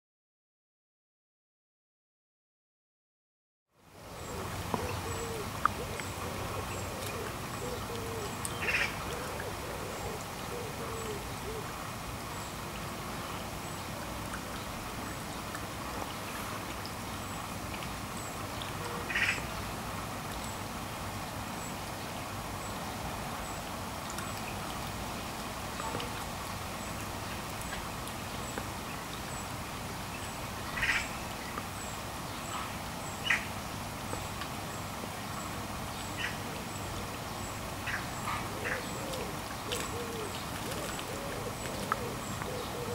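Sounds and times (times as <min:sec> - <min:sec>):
fountain bubbling and splashing: 0:03.9 - 0:42.9
high bird calls: 0:04.2 - 0:11.6.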